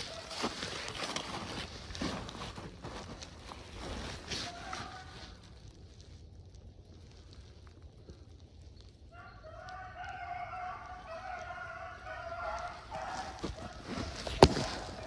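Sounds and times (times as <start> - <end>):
hounds baying: 0.0 - 1.2, 9.2 - 15.0.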